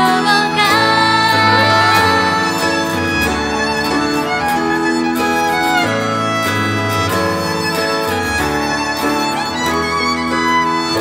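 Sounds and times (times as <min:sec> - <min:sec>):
acoustic guitar: 0:00.0 - 0:11.0
violin melody: 0:00.0 - 0:11.0
low bass line: 0:01.0 - 0:05.6.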